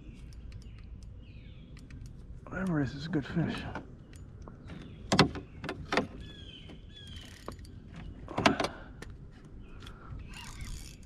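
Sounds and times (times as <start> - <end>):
spinning reel cranking: 10.3 - 11.0.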